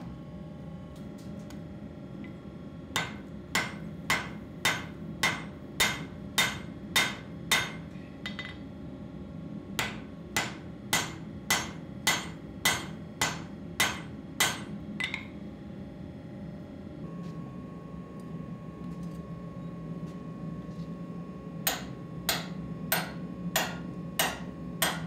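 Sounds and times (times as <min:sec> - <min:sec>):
hammer striking metal on anvil: 0:03.0 - 0:08.6, 0:09.8 - 0:15.3, 0:21.6 - 0:25.0.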